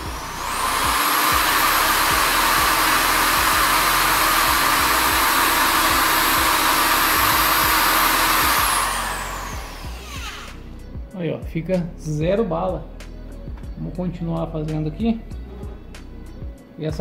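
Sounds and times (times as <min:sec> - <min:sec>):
electric drill high whine: 0:00.0 - 0:10.8.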